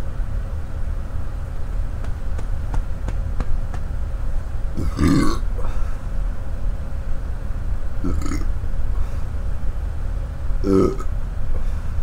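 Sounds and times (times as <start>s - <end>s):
loud burp: 4.8s - 5.5s, 8.0s - 8.5s, 10.6s - 11.1s.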